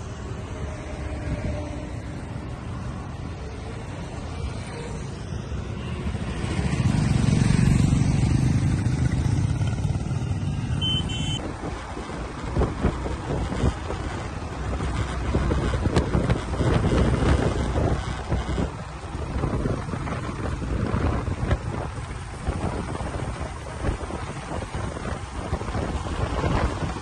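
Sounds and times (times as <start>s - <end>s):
group of motorcycles riding: 0.0s - 27.0s
motorcycle passing by: 4.6s - 11.4s.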